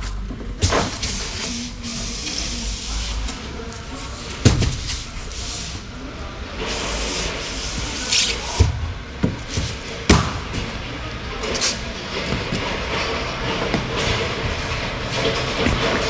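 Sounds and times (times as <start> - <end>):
foam boards rubbing and scraping: 0.6 - 5.8, 6.6 - 8.8.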